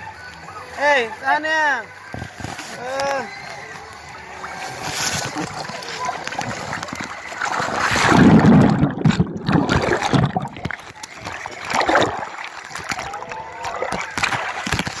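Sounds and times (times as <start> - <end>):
rubbing on microphone: 2.2 - 2.8
pool water splashing: 2.7 - 15.0.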